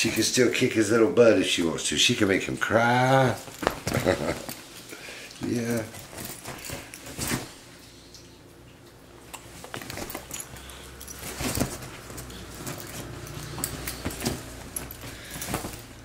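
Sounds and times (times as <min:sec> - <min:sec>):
rustles and clicks: 0:03.2 - 0:08.0, 0:09.3 - 0:16.0.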